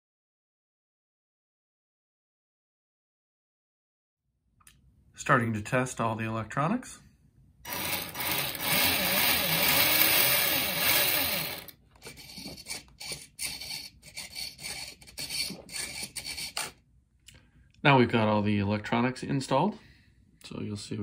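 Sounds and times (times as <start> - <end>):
small electric motor whirring: 7.7 - 16.8.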